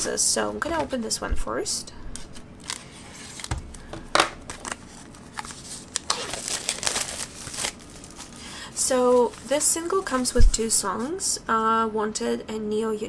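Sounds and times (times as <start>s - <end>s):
plastic film rustling: 2.2s - 11.1s
knife slitting plastic wrap: 4.5s - 10.3s.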